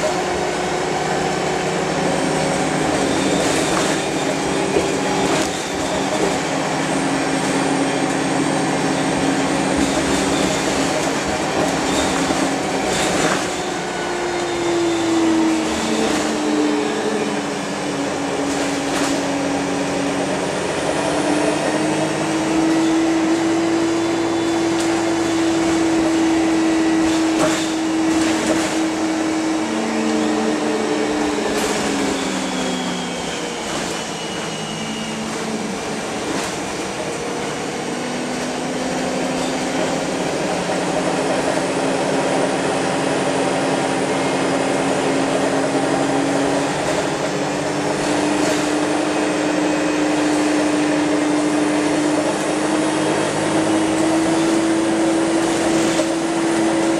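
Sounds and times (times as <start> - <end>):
bus engine whine: 0.0 - 56.9
road noise: 0.0 - 56.9
bus body knocks and rattles: 9.5 - 13.6, 24.6 - 29.0, 54.1 - 56.9.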